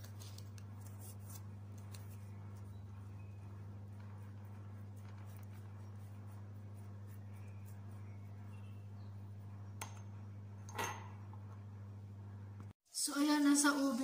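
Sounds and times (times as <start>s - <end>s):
steady low hum: 0.0s - 12.8s
pastry brush strokes on chicken: 3.5s - 8.9s.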